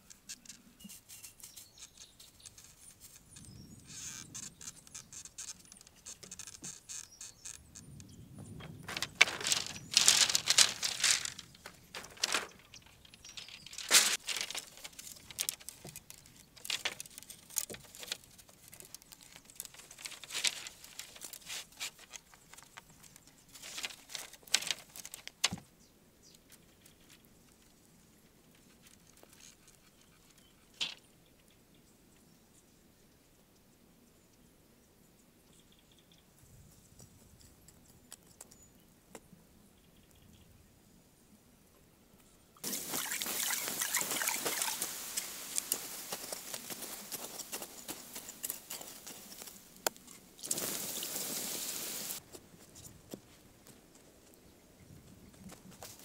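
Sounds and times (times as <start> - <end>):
bamboo strips rustling and clacking: 0.0 - 7.8, 8.6 - 25.7, 28.4 - 31.1, 42.6 - 54.4, 55.4 - 56.0.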